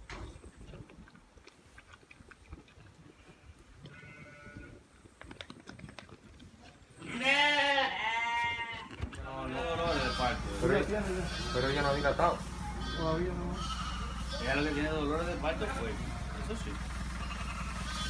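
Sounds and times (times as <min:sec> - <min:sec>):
goat bleating: 0:03.1 - 0:04.8, 0:07.0 - 0:16.4, 0:17.0 - 0:18.0.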